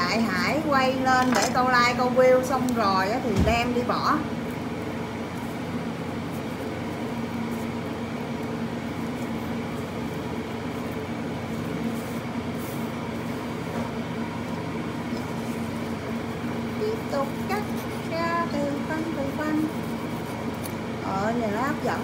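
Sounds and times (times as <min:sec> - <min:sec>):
machine hum: 0:00.0 - 0:22.0.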